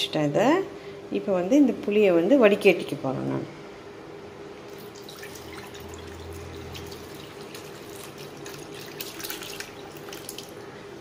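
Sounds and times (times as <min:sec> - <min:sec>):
water pouring through a strainer: 0:04.7 - 0:10.7
water splashing and trickling: 0:04.7 - 0:10.8.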